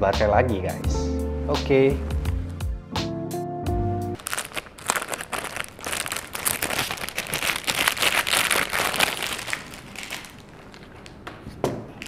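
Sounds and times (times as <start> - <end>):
plastic bag crinkling: 4.2 - 11.3.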